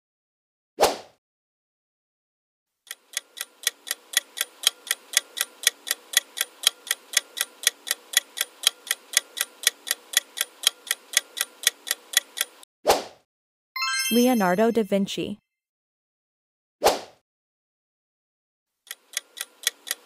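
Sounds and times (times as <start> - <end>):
ticking clock: 2.9 - 12.6, 18.8 - 20.0.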